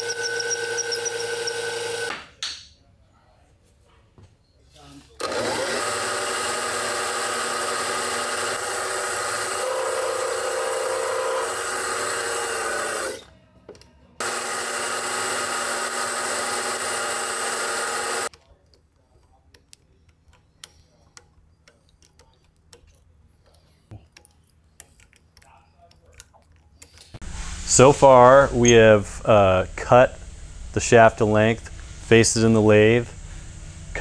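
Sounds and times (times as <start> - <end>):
milling machine whirring: 0.0 - 2.1, 5.2 - 13.3, 14.2 - 18.3.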